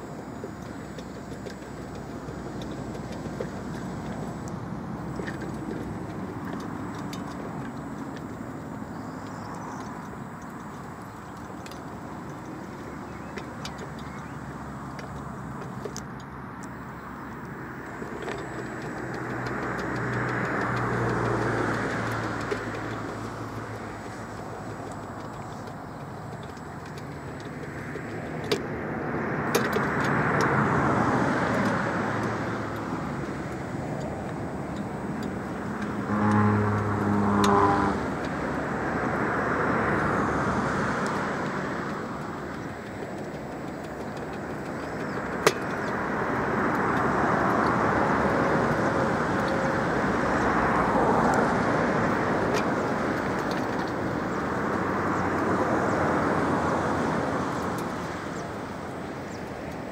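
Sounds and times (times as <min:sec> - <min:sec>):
road traffic passing: 0:00.0 - 0:59.9
vehicle pitched drone: 0:29.9 - 0:40.7.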